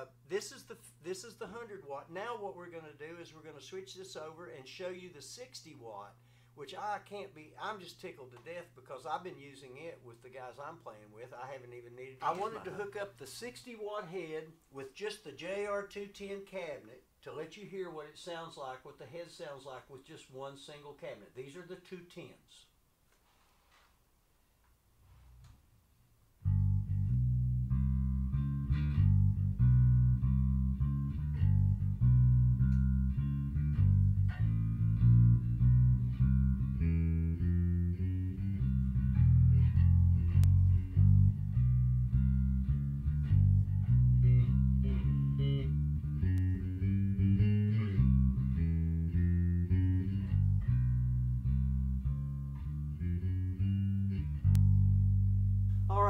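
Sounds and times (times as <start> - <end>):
plucked electric bass line: 26.4 - 56.0.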